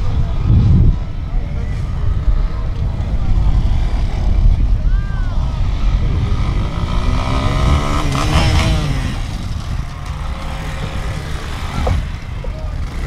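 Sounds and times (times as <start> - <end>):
dirt bike engine revving: 5.4 - 13.0.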